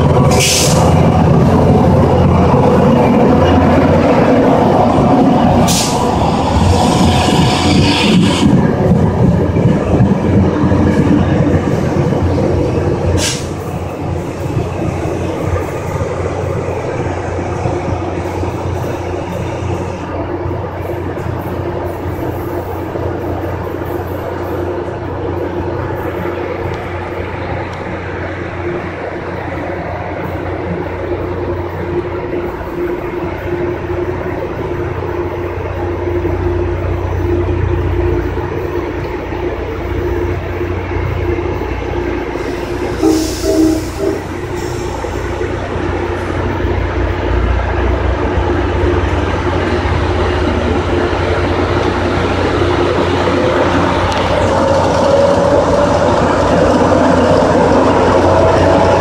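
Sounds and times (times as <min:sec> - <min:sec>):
diesel locomotive drone: 0:00.0 - 0:59.0.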